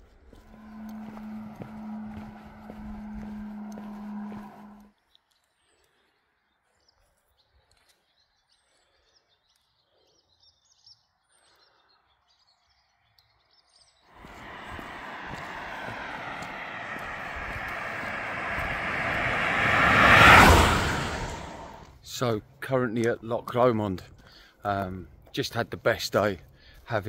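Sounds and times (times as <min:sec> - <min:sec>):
road traffic rushing: 0:00.3 - 0:04.9, 0:14.2 - 0:21.9
small birds chirping: 0:05.0 - 0:15.4.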